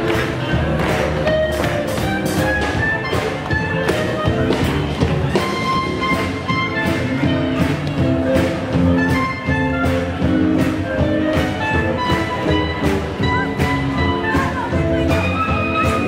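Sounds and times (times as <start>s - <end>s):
swing jazz band playing: 0.0s - 16.0s.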